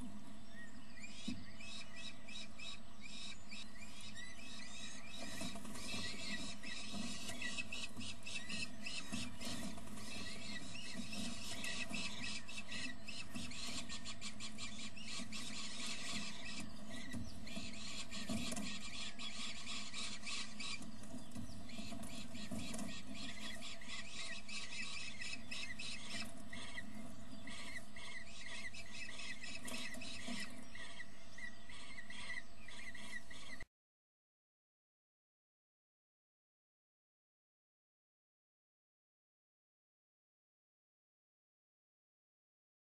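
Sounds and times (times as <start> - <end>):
chicks squealing begging calls: 0.2 - 33.7.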